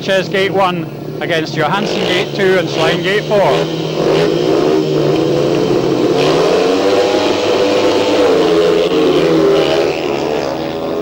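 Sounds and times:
motorcycle engines revving: 0.0 - 11.0.

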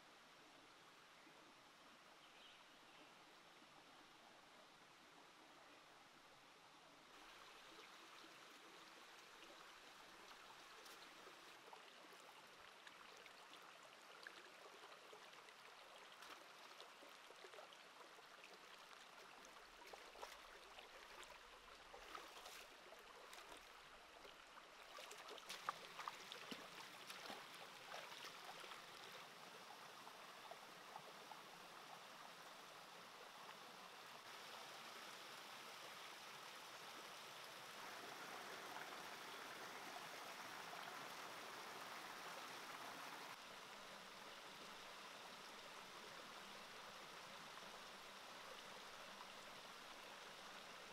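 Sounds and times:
stream running over rocks: 0.0 - 50.9
feet wading through water: 21.9 - 23.7, 24.8 - 29.1.

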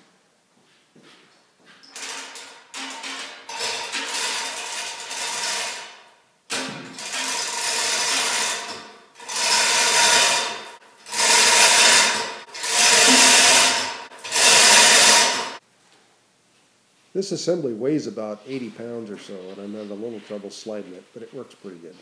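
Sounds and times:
chain hoist pulled under load: 1.9 - 15.6.

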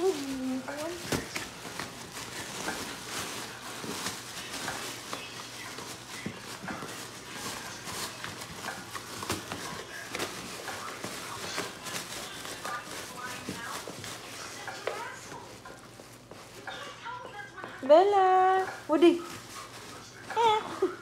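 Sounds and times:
plastic bag crinkling: 0.0 - 21.0.

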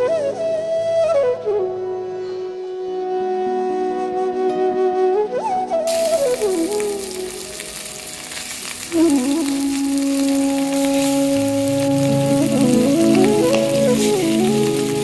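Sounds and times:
flute melody: 0.0 - 15.0
fish frying in hot oil: 5.9 - 15.0.

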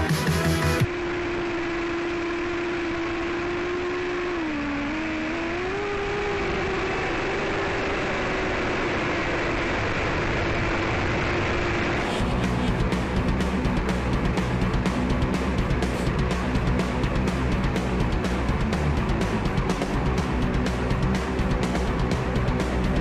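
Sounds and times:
music: 0.0 - 0.9, 12.0 - 23.0
drone motors whining: 0.0 - 23.0.

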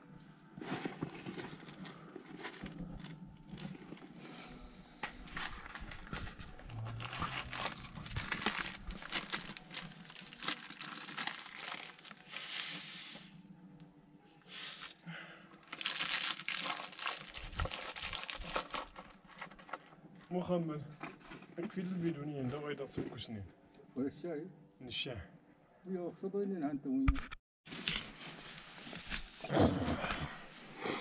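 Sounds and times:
rustling and crinkling: 0.4 - 13.3, 15.6 - 23.3, 27.7 - 29.4.

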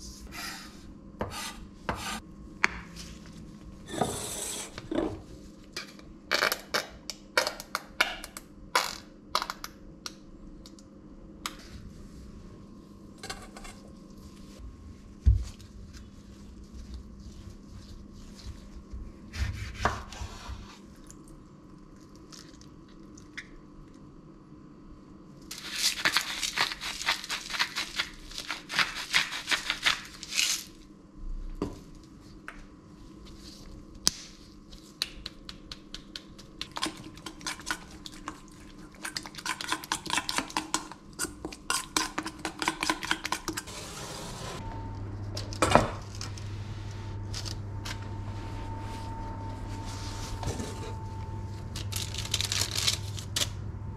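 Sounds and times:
steady hum: 43.6 - 53.9.

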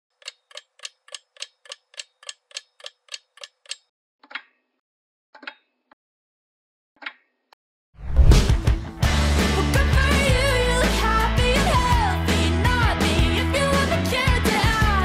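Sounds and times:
clock ticking: 0.2 - 4.4.

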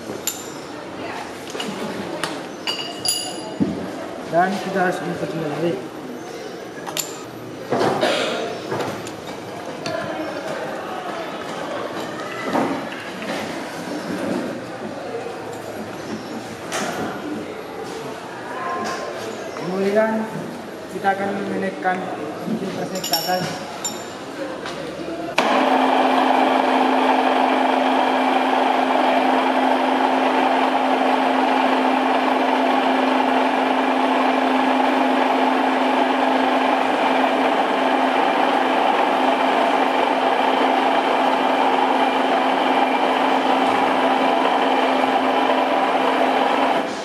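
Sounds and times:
machine motor humming: 25.4 - 46.9.

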